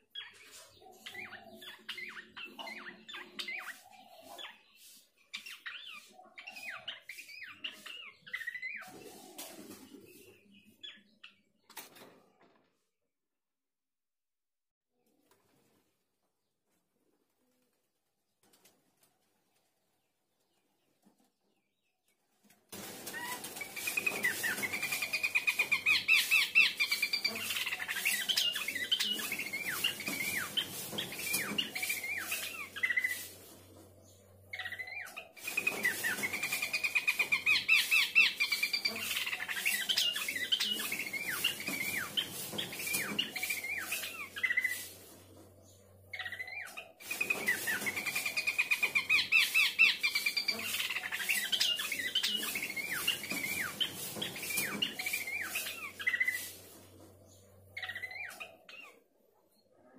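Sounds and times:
babbler bird singing: 0:57.2 - 0:59.1.

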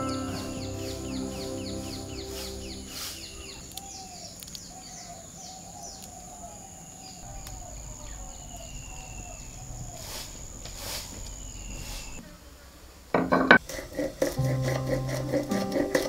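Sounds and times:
birds twittering: 0:00.0 - 0:12.2
insect droning: 0:00.0 - 0:16.0.

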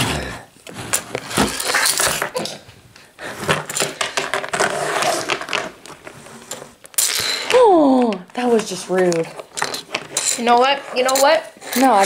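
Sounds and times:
plastic toy figures clicking: 0:09.0 - 0:12.0.

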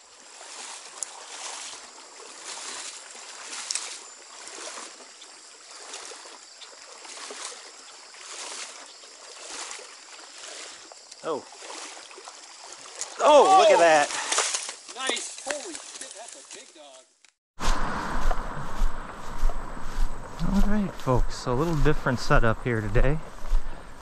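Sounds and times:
stream water rushing: 0:00.0 - 0:14.6, 0:17.6 - 0:24.0.

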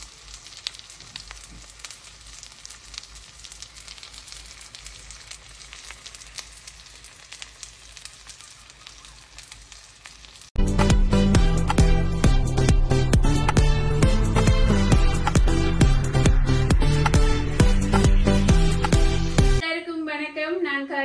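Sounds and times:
hot oil sizzling and popping: 0:00.0 - 0:19.6.

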